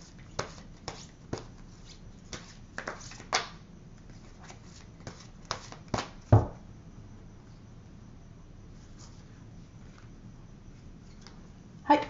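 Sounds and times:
thump: 6.3 - 6.6.

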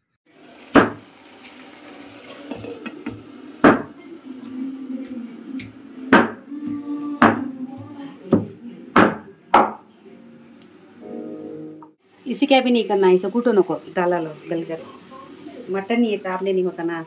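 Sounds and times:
soft background music: 9.4 - 12.0.

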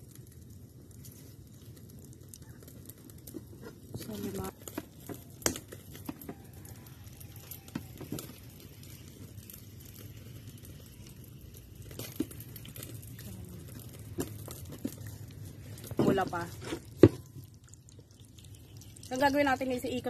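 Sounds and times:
low steady hum: 8.3 - 20.0.

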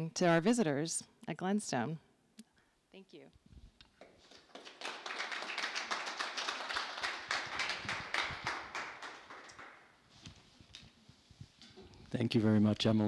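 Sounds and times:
audience applauding: 4.0 - 9.9.

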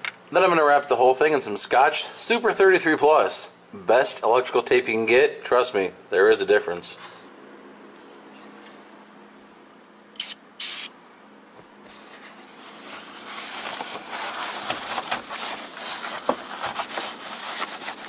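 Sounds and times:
aerosol spray hissing: 10.2 - 10.9
scratchy scrubbing of plastic lens: 15.3 - 18.0.

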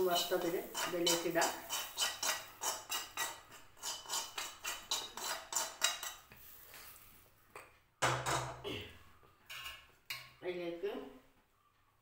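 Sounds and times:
spoon scraping metal frying pan: 0.0 - 6.6.

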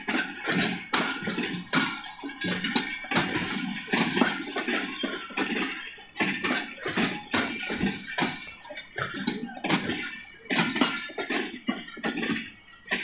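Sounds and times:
wheels clattering over rail joints: 0.0 - 13.0.

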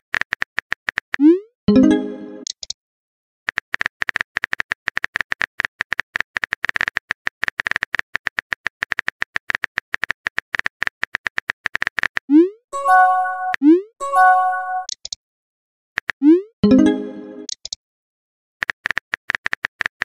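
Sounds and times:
rapid bright clicks: 3.5 - 12.3, 18.6 - 20.0.

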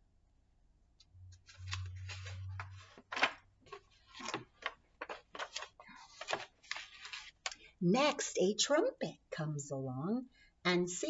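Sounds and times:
book page turning: 1.4 - 7.6
paper rustling and crinkling: 1.4 - 7.6.

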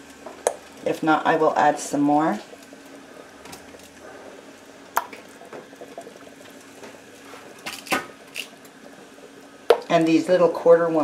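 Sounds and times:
water boiling in a pot: 0.0 - 11.0.

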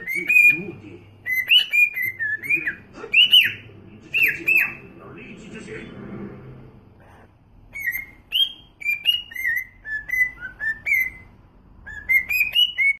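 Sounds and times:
cockatiel whistling a tune: 0.0 - 4.8, 7.7 - 13.0.

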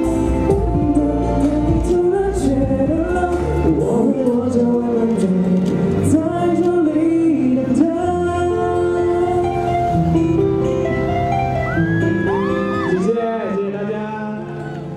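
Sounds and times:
instrumental accompaniment: 0.0 - 14.9
man singing into a microphone: 0.5 - 9.8, 12.8 - 14.9.

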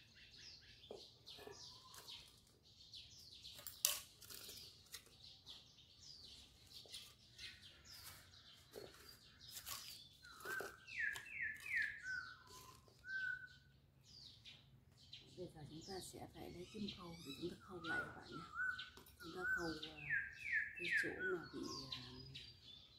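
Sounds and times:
small birds chirping: 0.0 - 22.9
whistled bird note: 10.4 - 13.7.

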